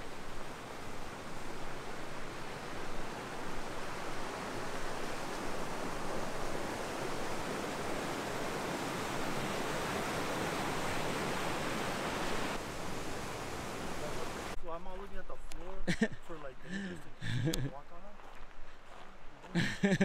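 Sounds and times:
creek rushing over rocks: 0.0s - 14.6s.

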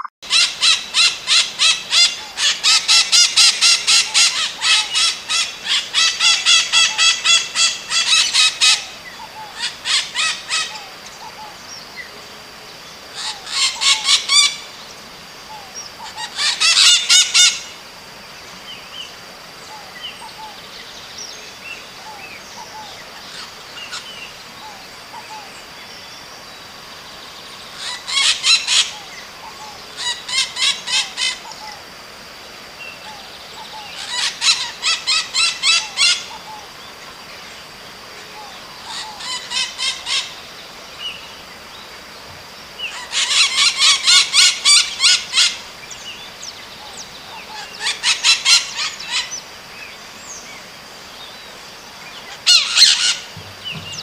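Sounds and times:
parakeet calling rapid notes: 0.0s - 8.8s, 52.4s - 53.4s.

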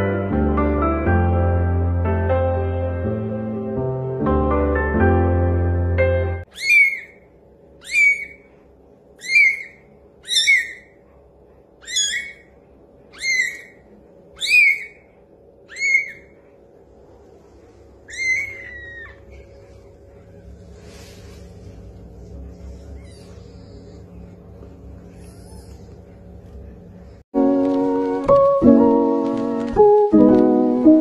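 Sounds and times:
kitten mewing: 18.1s - 19.5s.

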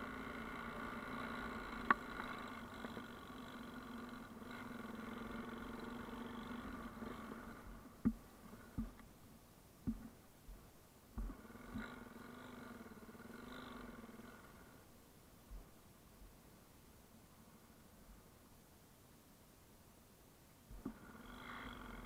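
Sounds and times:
motorcycle engine running: 0.0s - 9.0s, 11.2s - 14.8s
dull thumps: 8.0s - 9.0s, 9.8s - 11.9s.

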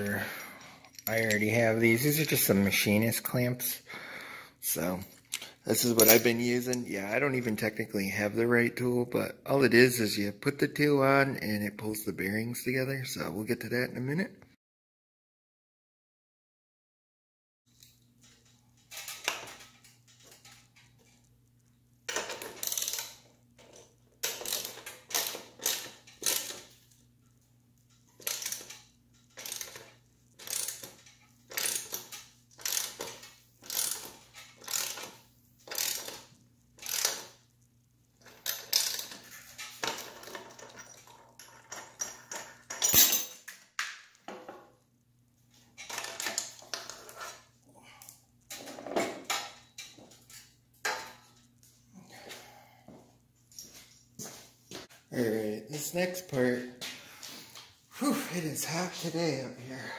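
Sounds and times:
clamp metallic scrapes and creaks: 46.8s - 47.6s.

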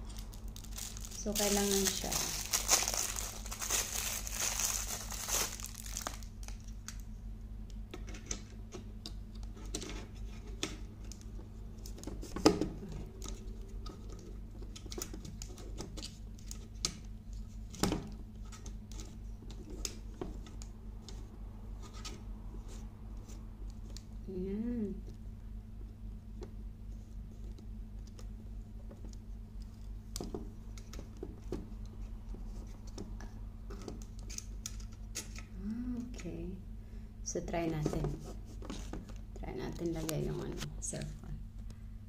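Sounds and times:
plastic packaging crinkling: 0.0s - 7.0s
steady low hum: 0.0s - 42.0s.

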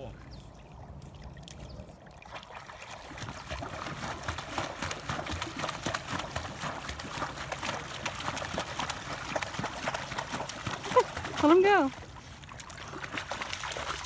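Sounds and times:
puppy splashing in water: 0.8s - 14.0s.

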